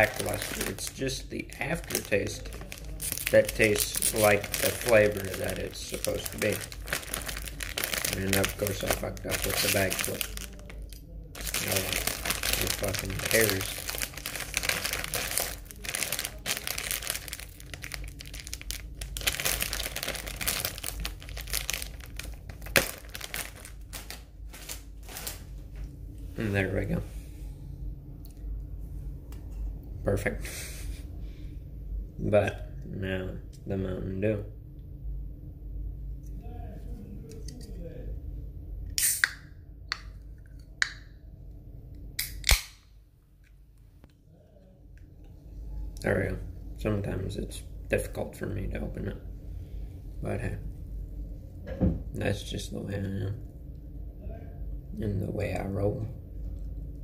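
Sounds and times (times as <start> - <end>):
plastic chip bag crinkling: 0.0 - 25.6.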